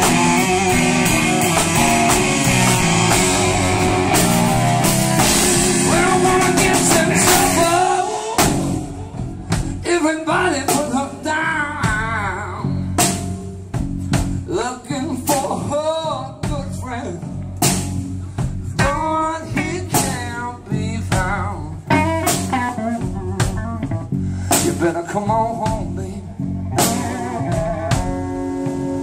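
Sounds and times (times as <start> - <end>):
electric guitar: 0.0 - 14.4, 17.3 - 29.0
drums: 0.0 - 29.0
man singing with vibrato: 5.4 - 12.8, 14.5 - 17.2, 18.8 - 22.1, 24.5 - 27.7.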